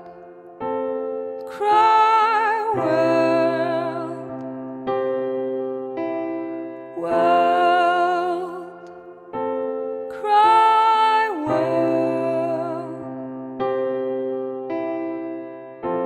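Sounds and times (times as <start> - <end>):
keyboard chords: 0.0 - 16.0
woman singing wordlessly: 1.5 - 4.4, 7.0 - 8.9, 10.1 - 13.2.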